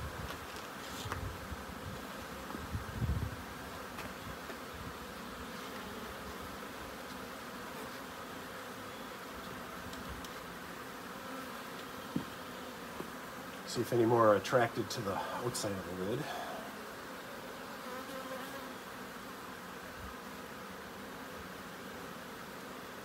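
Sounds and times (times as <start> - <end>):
swarm of bees buzzing: 0.0 - 23.0.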